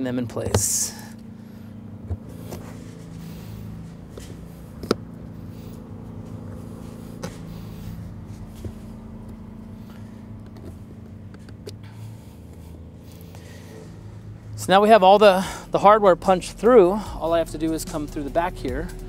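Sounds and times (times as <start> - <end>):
low mechanical hum: 0.0 - 19.0
bolts clicking through liner: 0.3 - 1.3, 4.0 - 6.6, 8.5 - 11.9.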